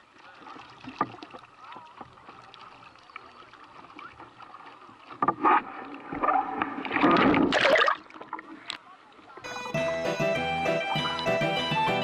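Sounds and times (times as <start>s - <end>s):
water lapping and splashing: 0.0s - 9.4s.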